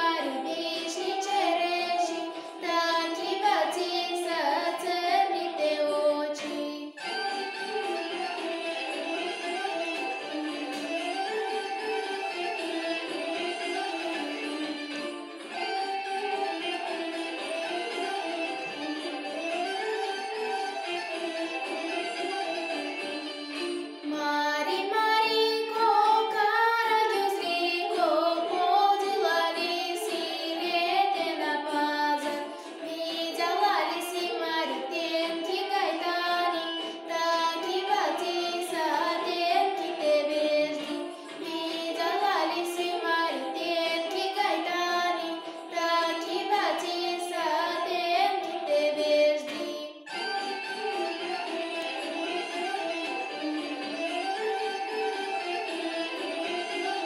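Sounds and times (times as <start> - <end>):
girl singing: 0.0 - 7.1, 24.1 - 50.1
instrumental accompaniment: 0.0 - 57.0.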